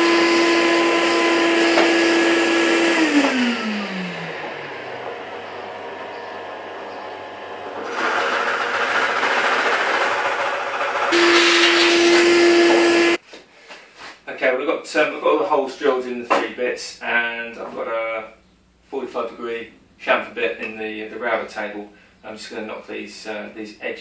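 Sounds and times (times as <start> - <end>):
drill bit grinding into wood: 0.0 - 7.0, 7.6 - 13.2
motor winding down: 0.0 - 13.2
shop vacuum whining: 0.0 - 13.2.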